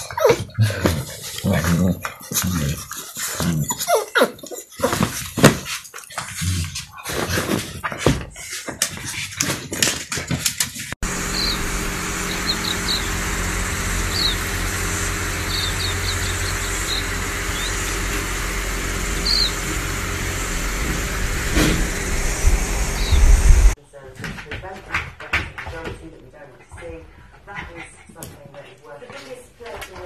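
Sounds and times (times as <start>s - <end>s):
puppies scuffling: 12.2s - 30.0s.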